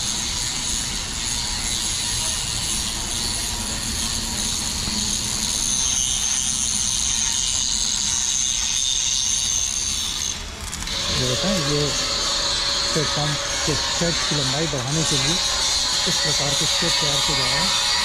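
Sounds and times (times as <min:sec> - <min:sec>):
machine high hiss: 0:10.9 - 0:18.0.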